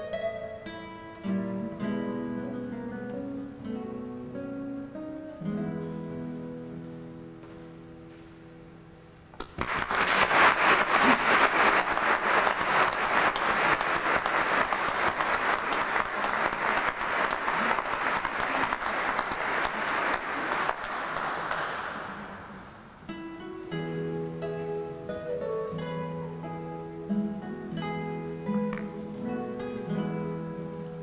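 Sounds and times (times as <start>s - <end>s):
classical guitar note: 0.0s - 8.8s, 21.6s - 31.0s
audience applause: 9.4s - 22.9s.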